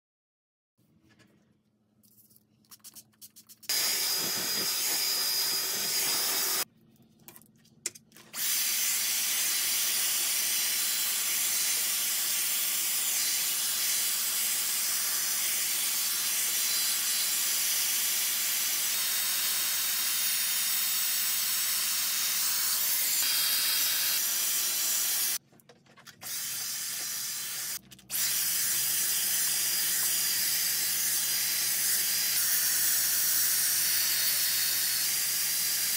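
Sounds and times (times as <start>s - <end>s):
pump spray bottle spritzes: 2.7s - 6.6s
hair styler blowing air: 3.7s - 6.7s, 8.4s - 25.4s, 26.2s - 35.9s.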